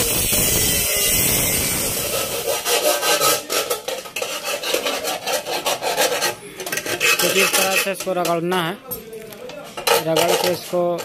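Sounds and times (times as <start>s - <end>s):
angle grinder cutting steel: 0.0s - 8.0s
rubbing on sheet metal edges: 0.0s - 8.4s, 9.7s - 11.0s.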